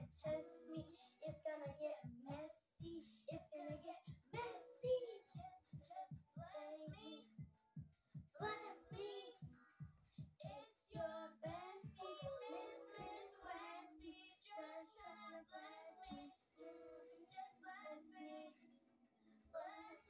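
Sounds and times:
high young-sounding vocal singing: 0.0 - 7.4, 8.4 - 20.0
steady music beat: 0.0 - 13.8.

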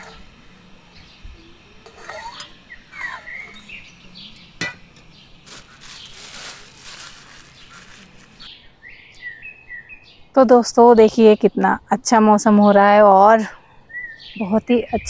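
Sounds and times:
birds chirping: 0.0 - 15.0
rustling noise: 5.4 - 8.5.

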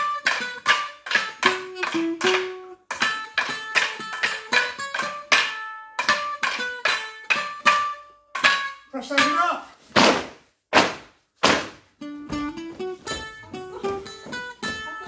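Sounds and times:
wooden sticks clashing: 0.0 - 11.8
sticks knocking on wooden floor: 1.8 - 15.0.

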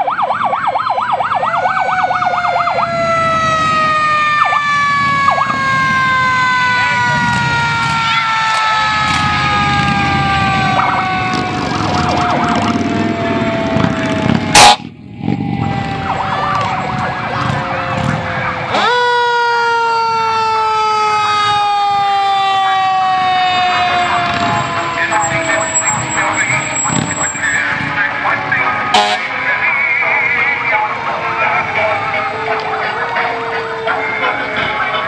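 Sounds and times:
fire engine siren: 0.0 - 35.0
truck rumble: 0.2 - 35.0.

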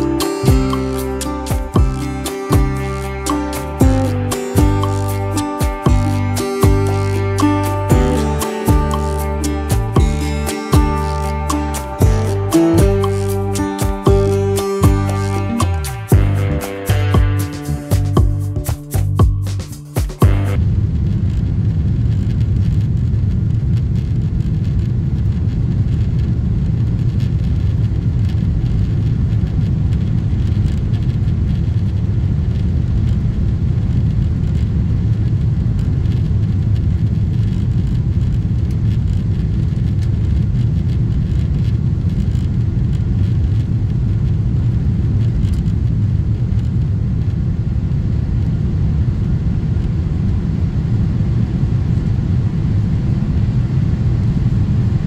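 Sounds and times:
jet engine rumble in cabin: 20.6 - 55.0.

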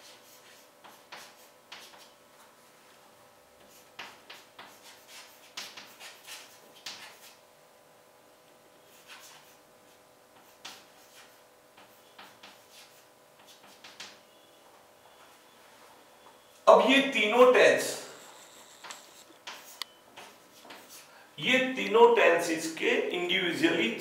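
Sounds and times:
chalk scratching on blackboard: 0.0 - 2.2, 3.6 - 7.4, 8.8 - 14.1, 18.2 - 21.1.

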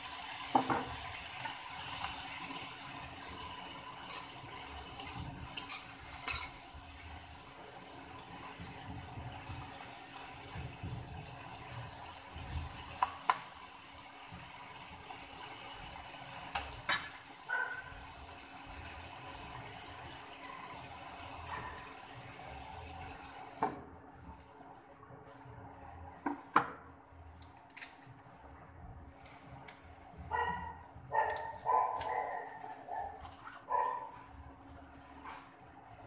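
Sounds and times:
vegetables sizzling in a wok: 0.0 - 23.7.

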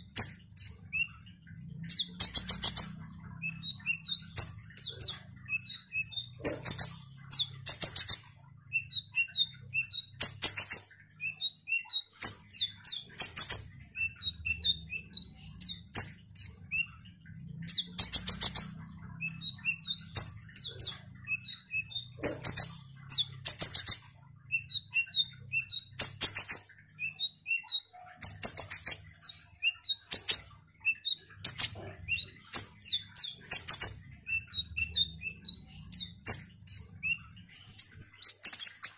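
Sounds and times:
faint low hum: 0.0 - 27.6
bird twittering song: 0.0 - 38.9.

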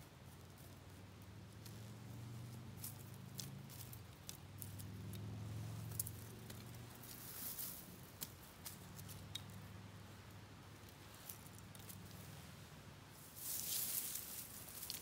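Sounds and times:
faint low hum: 0.0 - 15.0
dry twigs snapping and clicking: 2.8 - 5.3, 5.9 - 9.6, 10.8 - 12.2, 14.6 - 15.0.

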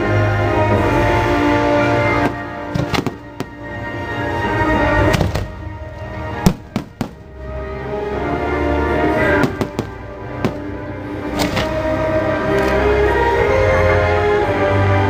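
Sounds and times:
orchestral music: 0.0 - 15.0
firework shells bursting: 2.2 - 3.8, 6.4 - 7.4, 9.4 - 11.9.

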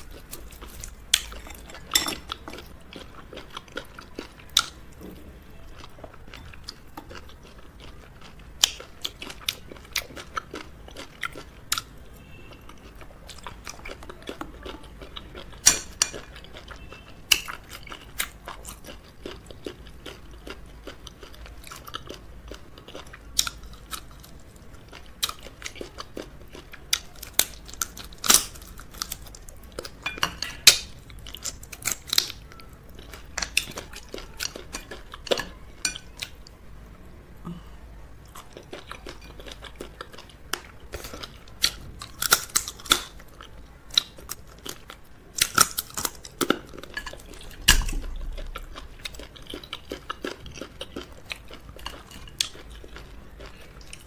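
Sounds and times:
chewing food: 0.0 - 37.6, 38.2 - 54.0
crab shell cracking: 47.6 - 48.8.

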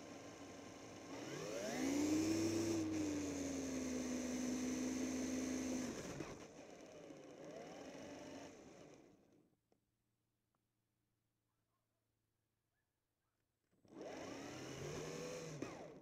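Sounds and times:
remote-control truck motor whining: 0.6 - 9.1, 13.9 - 16.0.

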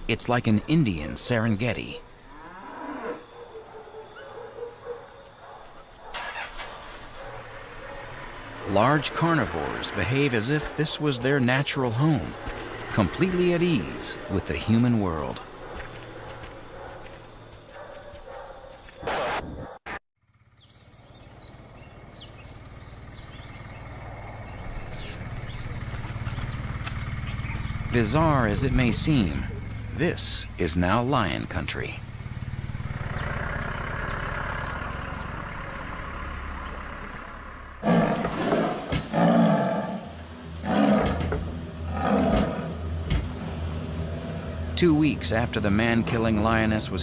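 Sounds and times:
low outdoor hum: 0.0 - 19.0, 20.3 - 47.0
birds chirping: 0.0 - 19.8, 20.4 - 47.0
lioness snarling and roaring: 37.8 - 44.8.

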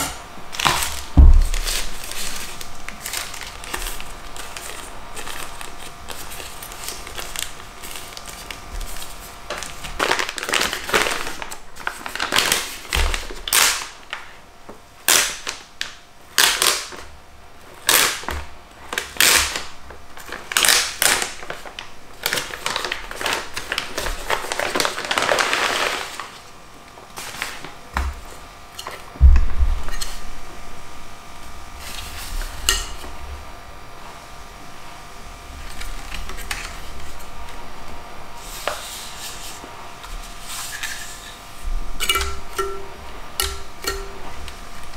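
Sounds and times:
packaging crinkling and rustling: 0.0 - 14.4, 17.8 - 30.2
dull thump: 1.2 - 1.6.

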